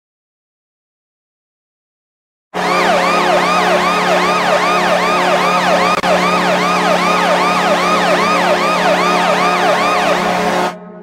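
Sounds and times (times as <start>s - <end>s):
low horn tone: 2.6s - 10.8s
wailing siren: 2.6s - 10.8s.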